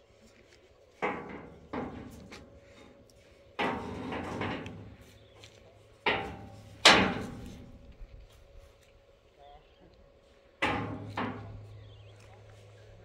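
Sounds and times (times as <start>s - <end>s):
steel beams knocking: 6.0s - 7.8s, 10.6s - 11.6s.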